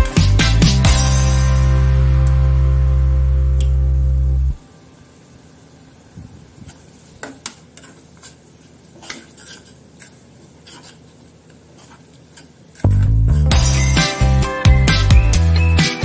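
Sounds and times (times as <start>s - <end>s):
loud background music: 0.0s - 3.5s, 13.5s - 16.0s
spoon scraping metal pan: 7.4s - 13.9s.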